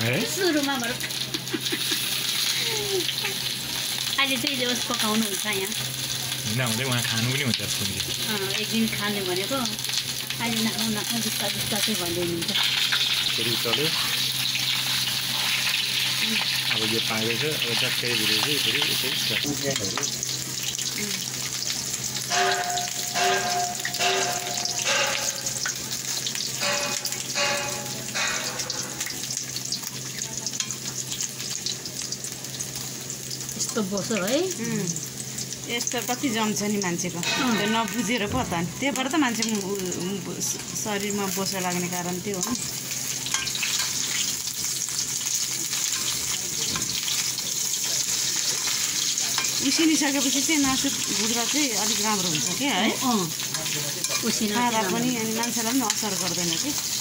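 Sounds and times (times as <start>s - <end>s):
meat sizzling in a wok: 0.0s - 57.0s
metal spoon stirring meat: 22.2s - 29.4s, 43.3s - 44.3s, 45.2s - 57.0s.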